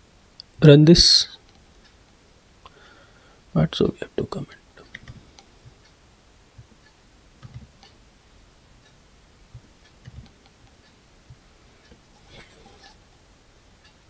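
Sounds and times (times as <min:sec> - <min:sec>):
keyboard keystrokes: 0:07.4 - 0:07.8
mouse clicks: 0:09.6 - 0:10.8.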